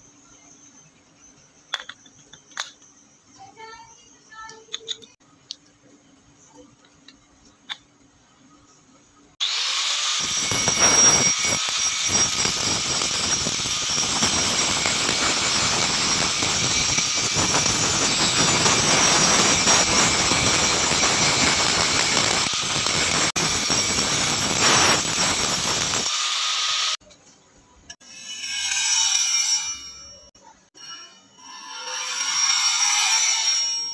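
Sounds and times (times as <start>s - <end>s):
angle grinder grinding steel: 9.4s - 27.0s, 28.0s - 33.9s.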